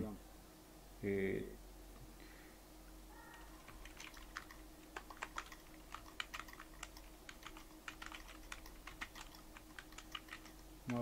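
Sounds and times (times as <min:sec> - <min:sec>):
keyboard typing clicks: 0:03.3 - 0:11.0.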